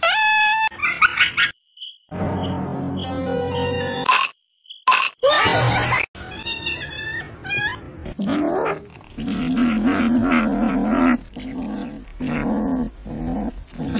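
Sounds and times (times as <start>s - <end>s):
cat growling while eating: 8.2s - 13.9s.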